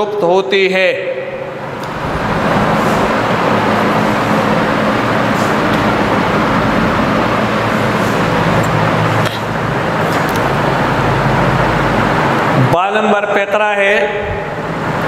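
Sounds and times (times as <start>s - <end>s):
loud mechanical drone: 0.9s - 15.0s
low hum: 1.1s - 12.7s.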